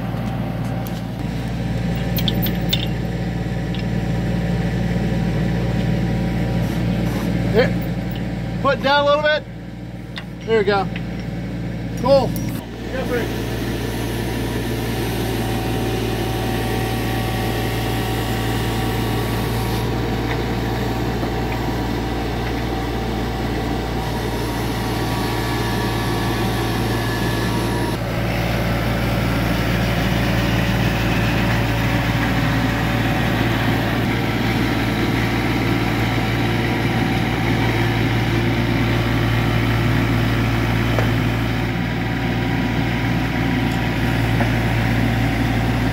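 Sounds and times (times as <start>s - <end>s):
diesel engine running: 0.0s - 45.9s
hydraulic drive head turning: 1.9s - 3.0s.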